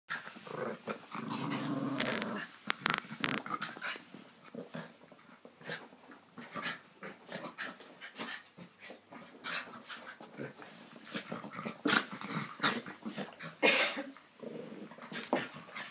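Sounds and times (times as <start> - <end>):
small dogs growling: 0.1 - 13.7, 14.3 - 15.9.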